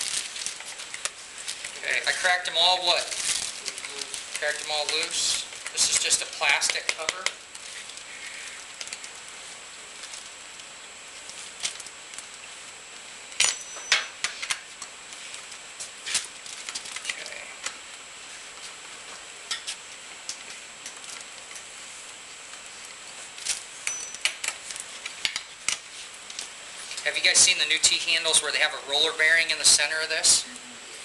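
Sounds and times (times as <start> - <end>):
faint high whine: 1.8 - 24.9.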